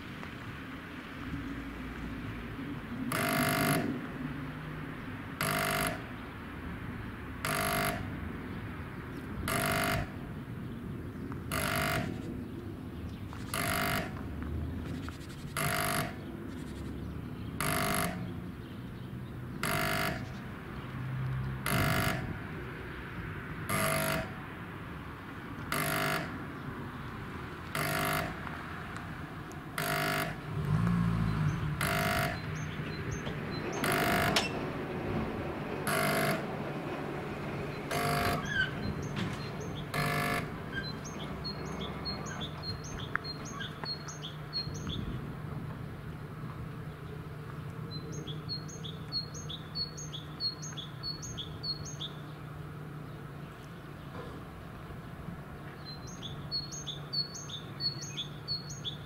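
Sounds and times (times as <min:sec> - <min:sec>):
vehicle engine: 0:00.0 - 0:59.0
level-crossing warning buzzer: 0:03.1 - 0:04.0, 0:05.4 - 0:06.1, 0:07.4 - 0:08.2, 0:09.4 - 0:10.2, 0:11.5 - 0:12.3, 0:13.5 - 0:14.2, 0:15.5 - 0:16.7, 0:17.6 - 0:18.4, 0:19.6 - 0:20.4, 0:21.6 - 0:22.4, 0:23.7 - 0:24.4, 0:25.7 - 0:26.4, 0:27.7 - 0:28.5, 0:29.7 - 0:34.5, 0:35.8 - 0:36.6, 0:37.7 - 0:42.8.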